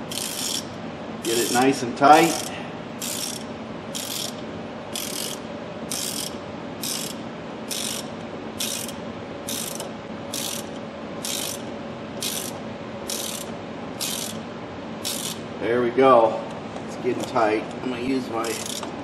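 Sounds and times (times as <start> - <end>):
ratchet wrench clicking: 0.1 - 14.4, 15.0 - 15.4, 18.4 - 18.9.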